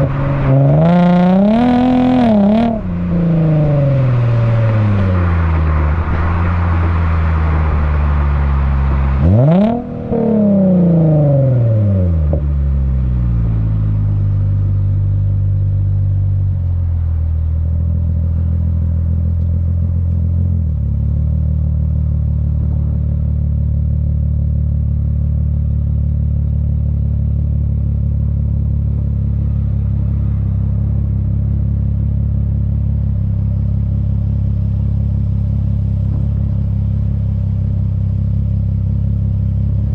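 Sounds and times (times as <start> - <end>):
car engine idling: 0.0 - 39.9
car engine revving: 0.0 - 39.9.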